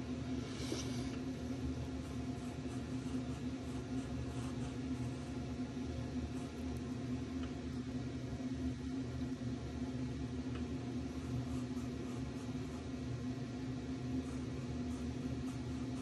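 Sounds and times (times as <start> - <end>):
steady mechanical motor hum: 0.0 - 16.0
marker scratching on paper: 2.0 - 5.4.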